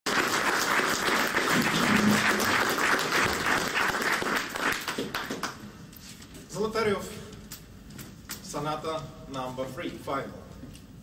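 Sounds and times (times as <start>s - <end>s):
audience applauding: 0.1s - 5.6s.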